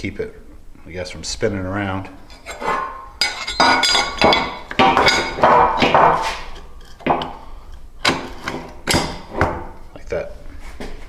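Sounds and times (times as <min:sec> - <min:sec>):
metal-on-metal clinks and scraping: 0:02.2 - 0:09.2.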